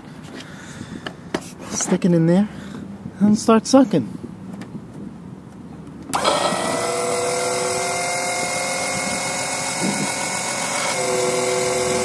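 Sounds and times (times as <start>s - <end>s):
electric pump whining: 6.1s - 12.0s.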